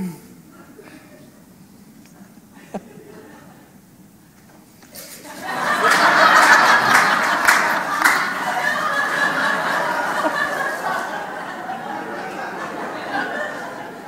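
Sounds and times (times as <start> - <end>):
audience laughing: 2.6 - 3.8, 5.0 - 14.0.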